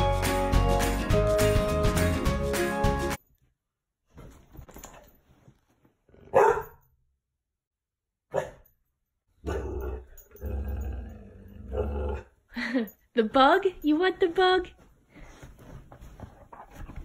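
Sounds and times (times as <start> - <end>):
dog barking: 6.3 - 6.8, 8.3 - 8.7, 9.4 - 10.1.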